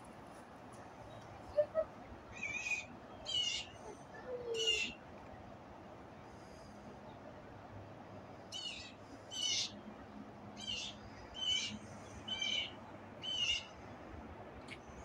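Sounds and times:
faint outdoor background noise: 0:00.0 - 0:15.0
bird calling harshly: 0:01.5 - 0:03.8, 0:08.5 - 0:09.8.

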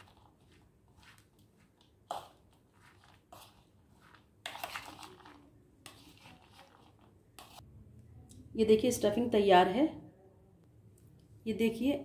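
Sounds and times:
spoon stirring vegetables in bowl: 0:00.0 - 0:07.7.

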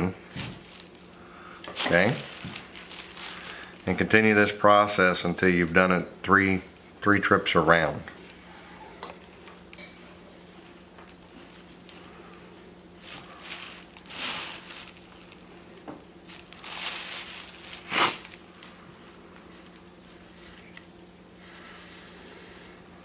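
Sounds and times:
low steady hum: 0:00.0 - 0:23.0
cord rustling and rubbing: 0:00.3 - 0:04.0, 0:13.0 - 0:20.9.

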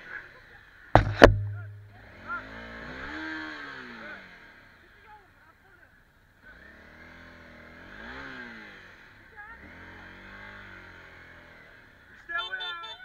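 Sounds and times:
motorcycle engine revving: 0:01.0 - 0:05.2, 0:06.4 - 0:12.2.

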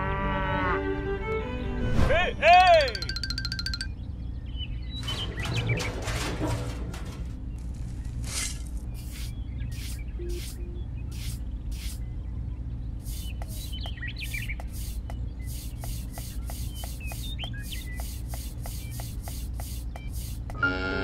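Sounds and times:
trowel scraping sand: 0:08.2 - 0:10.6, 0:11.2 - 0:12.0, 0:13.1 - 0:20.6
faint chirps: 0:13.0 - 0:19.1.

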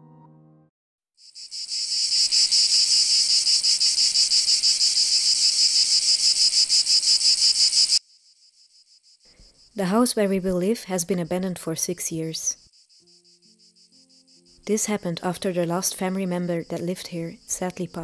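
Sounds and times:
insects chirring: 0:01.2 - 0:18.0.

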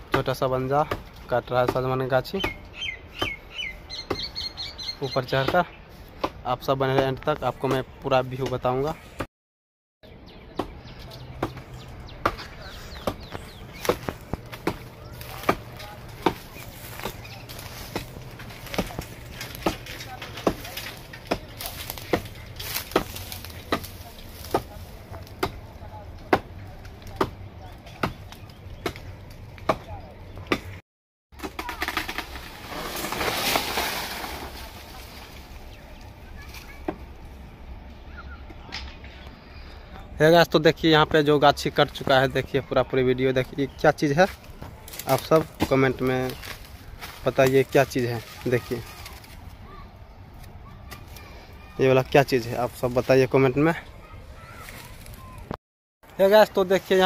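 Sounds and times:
faint birds chirping: 0:00.0 - 0:09.3, 0:10.0 - 0:30.8, 0:34.9 - 0:55.5
branch cracking: 0:11.0 - 0:30.7, 0:31.4 - 0:37.1, 0:44.1 - 0:53.2, 0:54.0 - 0:57.0
blade chopping into tree: 0:12.2 - 0:25.6, 0:31.4 - 0:35.1
branch rustling through leaves: 0:12.4 - 0:25.5, 0:31.6 - 0:37.4, 0:44.3 - 0:55.5.

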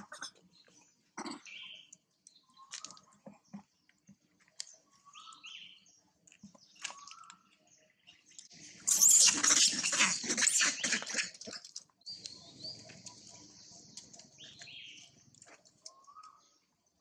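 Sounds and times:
macaques screaming: 0:08.9 - 0:11.4.

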